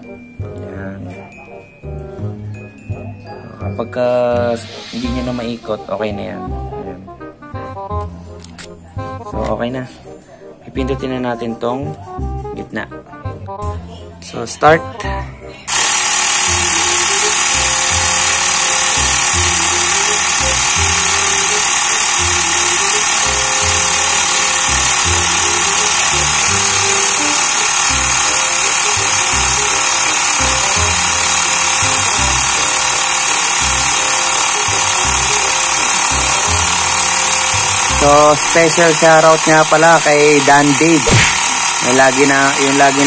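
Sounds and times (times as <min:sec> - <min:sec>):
background music: 0:00.0 - 0:43.0
air compressor humming: 0:04.2 - 0:07.0, 0:15.6 - 0:43.0.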